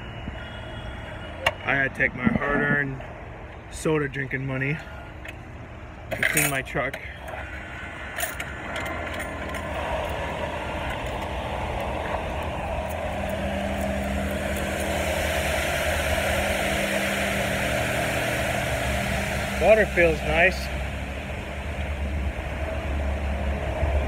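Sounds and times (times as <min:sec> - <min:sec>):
low hum: 0:00.0 - 0:24.0
pressure washer water spray hiss: 0:13.2 - 0:23.5.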